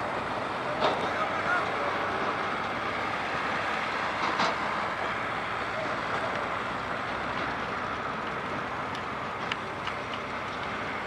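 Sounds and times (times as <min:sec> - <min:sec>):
diesel engines running: 0:00.0 - 0:11.0.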